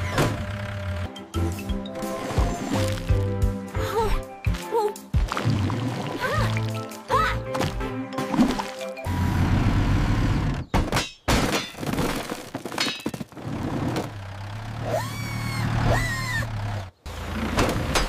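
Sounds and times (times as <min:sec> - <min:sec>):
cartoon bulldozer engine rumble: 0:00.0 - 0:03.2, 0:09.0 - 0:10.9, 0:11.5 - 0:18.0
sharp knocks and crashes: 0:10.7 - 0:14.1.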